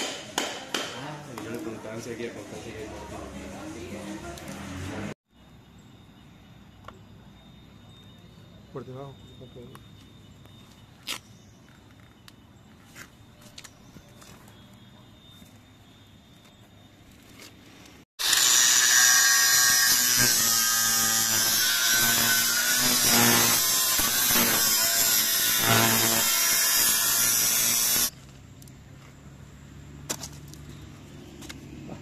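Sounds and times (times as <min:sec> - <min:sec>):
angle grinder cutting sheet metal: 0:18.2 - 0:28.1.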